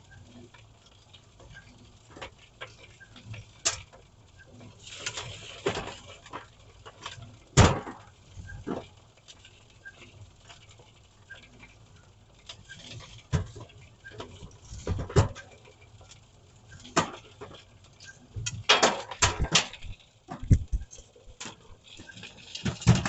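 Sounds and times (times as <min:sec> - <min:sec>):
stones clattering in rotating drum: 0:16.8 - 0:23.0.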